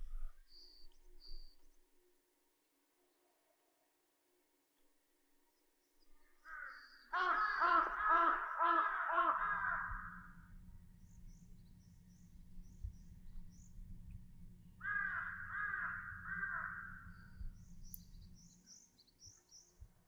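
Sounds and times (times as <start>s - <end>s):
crow cawing: 6.4s - 10.4s, 14.8s - 17.2s
low rumble: 8.9s - 18.6s
small bird chirping: 16.8s - 19.9s.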